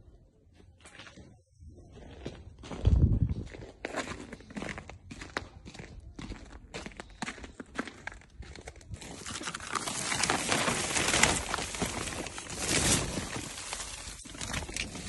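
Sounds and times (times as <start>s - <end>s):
footsteps crunching in snow: 2.0s - 15.0s
plastic film crinkling: 9.0s - 15.0s.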